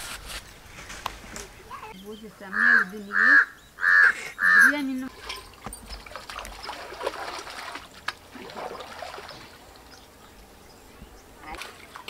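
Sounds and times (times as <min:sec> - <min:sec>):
water trickling and lapping: 0:04.4 - 0:12.0.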